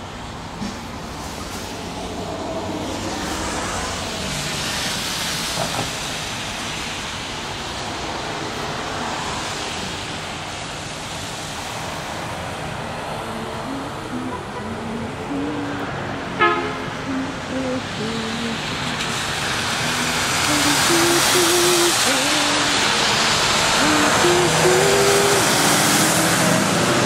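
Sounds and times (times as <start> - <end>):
tyres hissing on wet road: 0.0 - 27.0
vehicle passing: 11.8 - 27.0.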